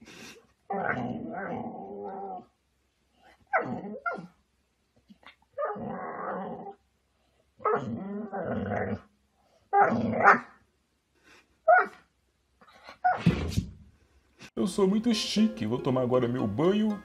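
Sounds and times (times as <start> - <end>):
dog growling and barking: 0.7 - 2.5, 3.5 - 4.4, 5.6 - 6.8, 7.6 - 9.1, 9.7 - 10.6.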